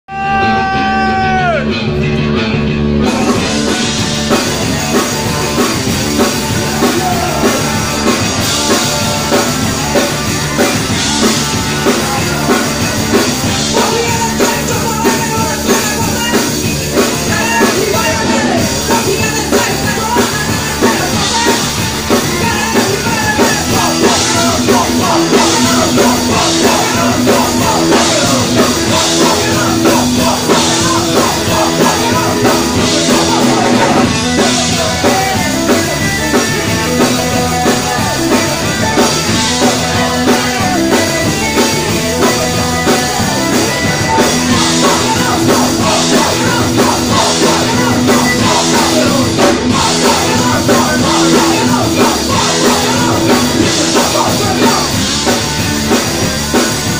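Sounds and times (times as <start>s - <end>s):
drum kit beat: 0.1s - 56.9s
rock band playing live: 0.1s - 56.9s.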